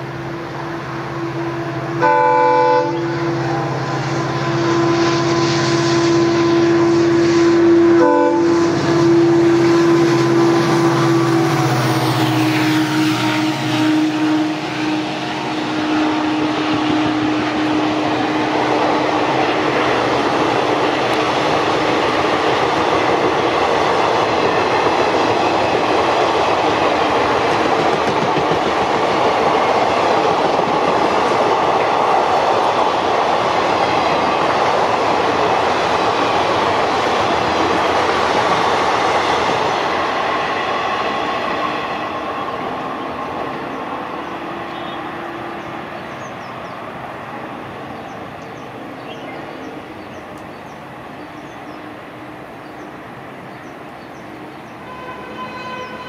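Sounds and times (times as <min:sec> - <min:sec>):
locomotive horn: 0:00.6 - 0:19.7, 0:44.5 - 0:45.6, 0:54.8 - 0:56.0
train wheel clatter: 0:15.5 - 0:45.0.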